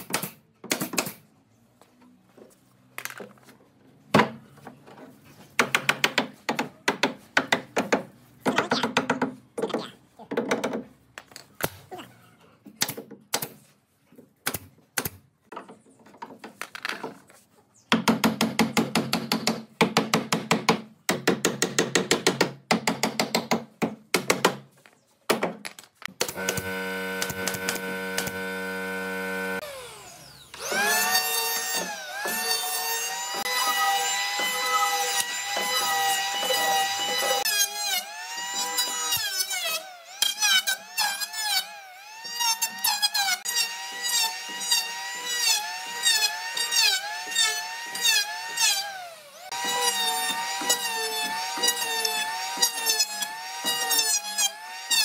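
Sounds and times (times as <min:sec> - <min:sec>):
electric hand planer: 0:26.2 - 0:55.0.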